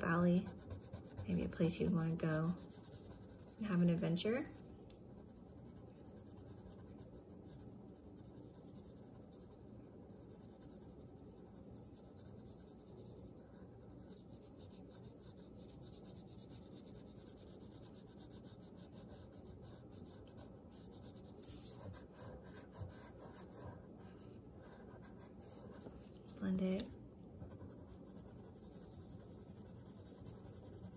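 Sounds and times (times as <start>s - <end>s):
pencil scratching on paper: 0.0s - 30.9s.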